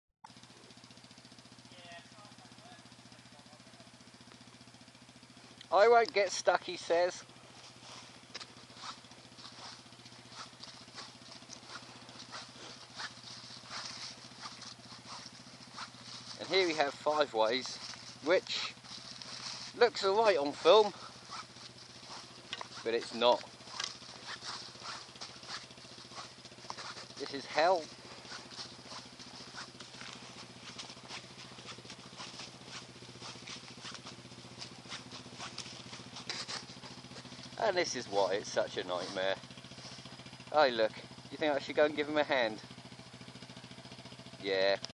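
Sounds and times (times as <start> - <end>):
quad bike engine running: 0.2 - 44.9
footsteps crunching through leaves: 7.4 - 40.4.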